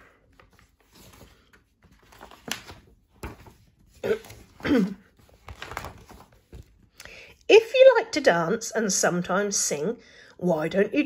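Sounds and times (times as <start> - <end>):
paper pages rustling: 0.0 - 7.0.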